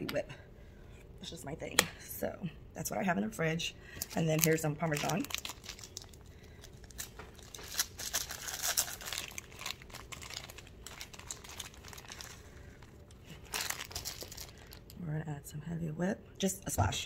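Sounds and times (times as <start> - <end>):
plastic bag crinkling: 4.0 - 15.0.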